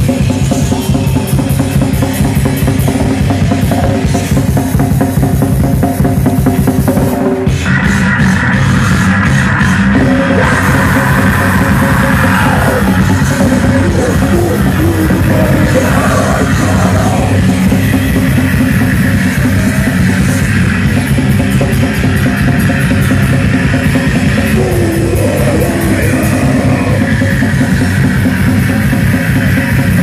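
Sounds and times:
distorted electric guitars: 0.0s - 30.0s
fast drums: 0.0s - 30.0s
loud live punk band: 0.0s - 30.0s.

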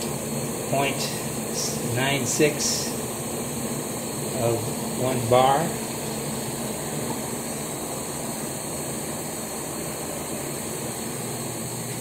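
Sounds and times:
machine hum with low drone: 0.0s - 12.0s.

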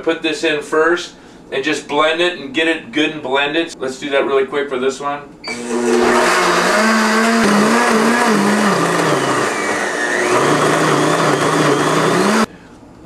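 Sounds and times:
blender running: 5.5s - 12.5s.

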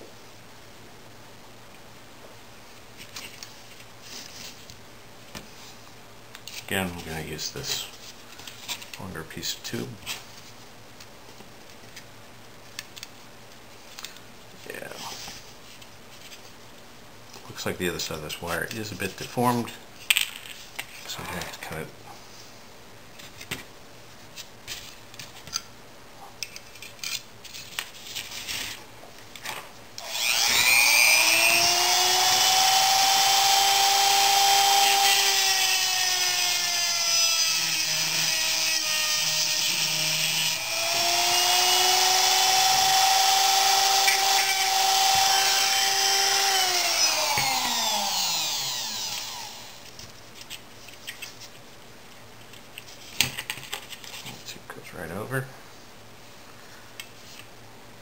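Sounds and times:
rotary tool whining: 30.0s - 49.9s.

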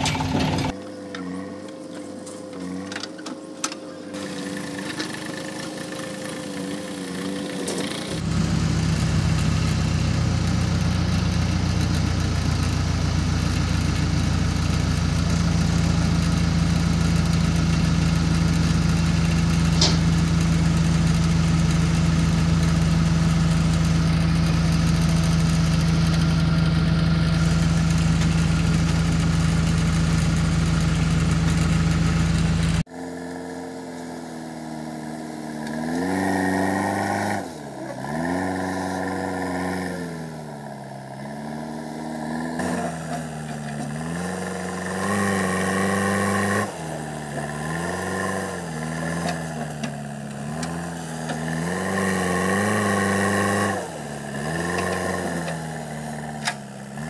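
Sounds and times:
backhoe engine revving outside: 0.0s - 57.0s
diesel engine running: 0.0s - 57.0s
sharp click: 19.7s - 20.2s.

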